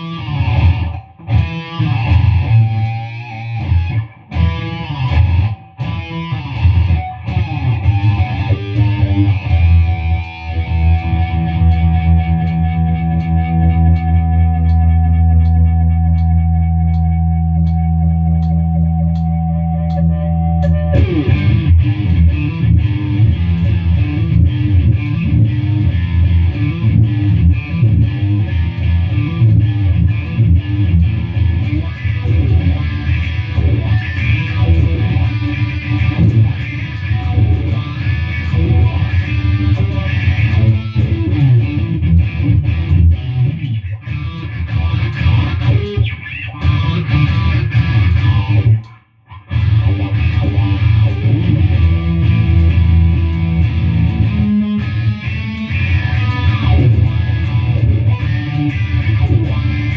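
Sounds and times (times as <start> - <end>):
electric guitar through amplifier: 0.0 - 59.9.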